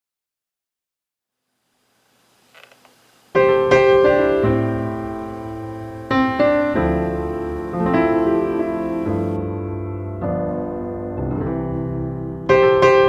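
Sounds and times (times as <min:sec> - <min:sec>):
piano chords: 0:03.3 - 0:13.0.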